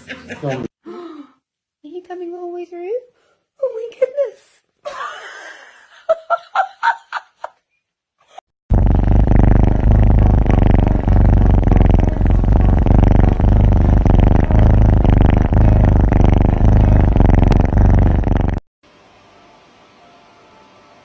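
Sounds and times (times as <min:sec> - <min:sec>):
kitten purring: 0:08.7 - 0:18.6.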